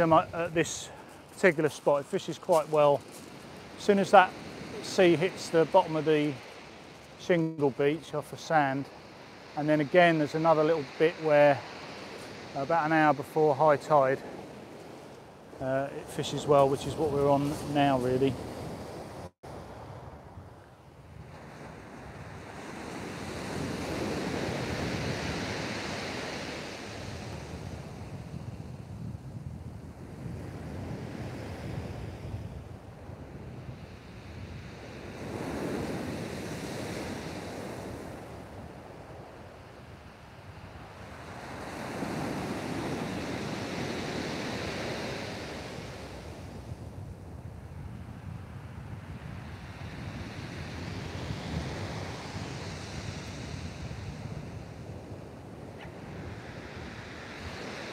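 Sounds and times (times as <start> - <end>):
waves breaking on shingle beach: 0.0 - 20.0, 21.3 - 28.1, 34.4 - 46.8
wind on microphone: 17.3 - 57.9.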